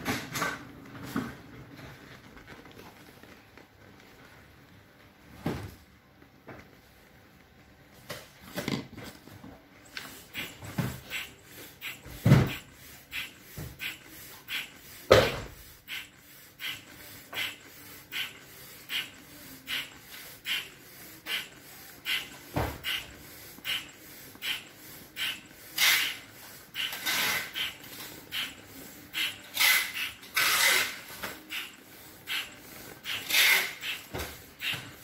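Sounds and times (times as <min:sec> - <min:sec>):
foot pump puffing air: 0:09.8 - 0:35.0.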